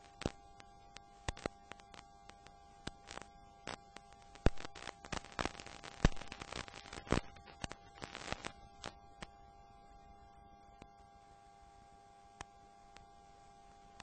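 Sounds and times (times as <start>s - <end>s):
sharp pops and crackles: 0.0s - 9.4s
faint steady hum: 0.0s - 14.0s.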